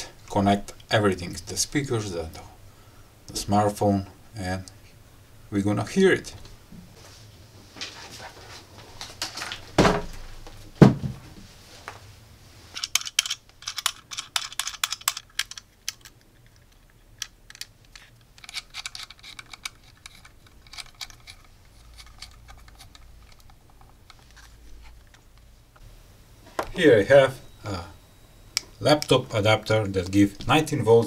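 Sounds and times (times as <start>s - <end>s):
heavy thumps: 9.7s - 11.4s
small clicks and rattles: 12.8s - 25.5s.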